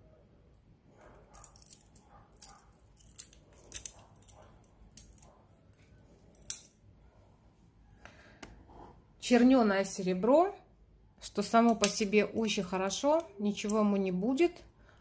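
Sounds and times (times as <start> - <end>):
metal bracelet clicking and clinking: 1.0 - 6.8, 11.6 - 14.0.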